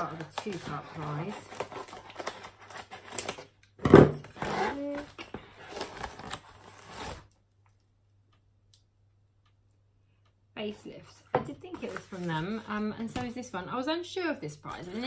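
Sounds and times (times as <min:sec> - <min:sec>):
packaging crinkling and rustling: 0:00.0 - 0:03.6, 0:04.2 - 0:07.4.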